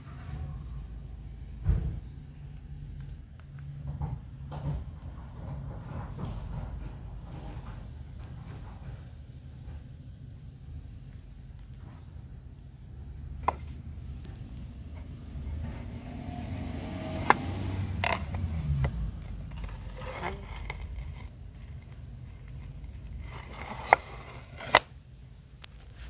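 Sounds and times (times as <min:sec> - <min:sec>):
tiles clicking and scraping: 0:17.1 - 0:24.9.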